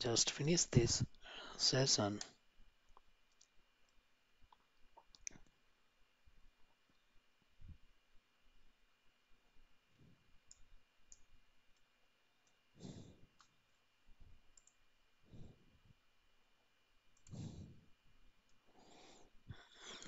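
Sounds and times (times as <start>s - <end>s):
soft breaths: 0.0s - 2.5s, 9.4s - 10.9s, 12.3s - 20.0s
computer mouse clicks: 10.5s - 12.6s, 13.4s - 13.6s, 14.5s - 14.8s, 17.1s - 17.6s.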